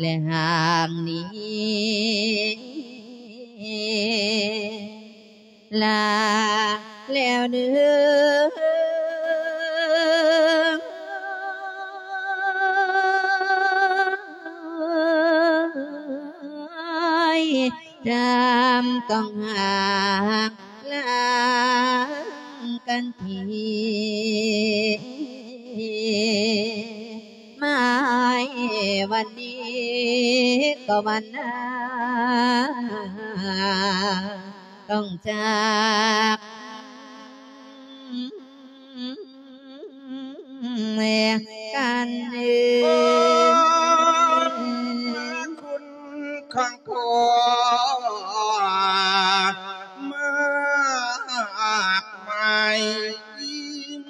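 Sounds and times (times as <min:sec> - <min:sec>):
monk chanting with vibrato: 0:17.0 - 0:37.9, 0:41.4 - 0:54.0.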